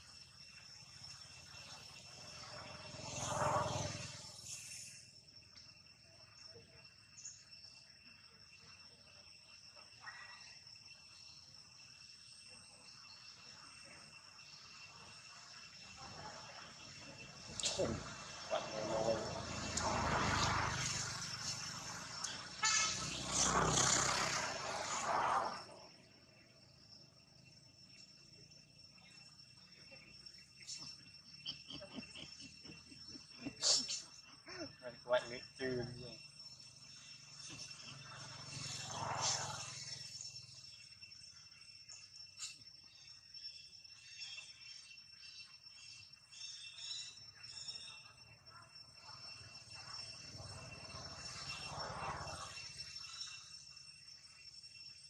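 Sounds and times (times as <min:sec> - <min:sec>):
insects droning: 0:00.0 - 0:55.0
road traffic passing: 0:01.7 - 0:04.8, 0:16.7 - 0:26.2, 0:35.2 - 0:40.7, 0:49.3 - 0:53.2
short vehicle horn toot: 0:22.6 - 0:23.0.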